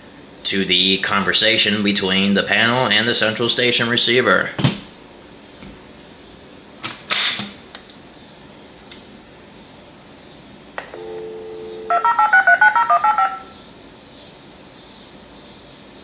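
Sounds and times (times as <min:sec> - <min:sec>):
telephone line click: 0:10.8 - 0:13.2
dial tone: 0:11.0 - 0:13.5
dtmf dialing tones: 0:11.0 - 0:13.5.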